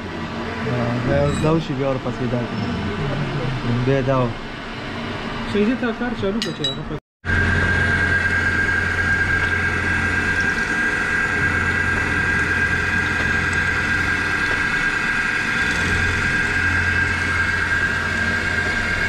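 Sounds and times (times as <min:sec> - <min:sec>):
milling machine whine: 0:00.0 - 0:19.0
low hum: 0:07.3 - 0:19.0.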